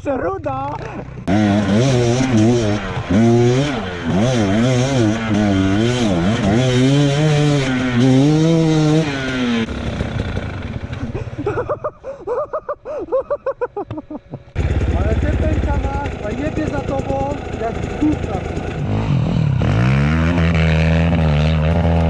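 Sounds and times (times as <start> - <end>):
dirt bike engine revving: 0.6 - 11.8, 14.4 - 22.0.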